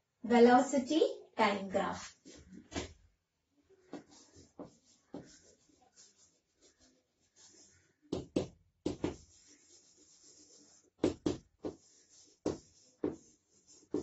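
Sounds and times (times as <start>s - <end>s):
chalk tapping and scraping on chalkboard: 3.8s - 14.0s.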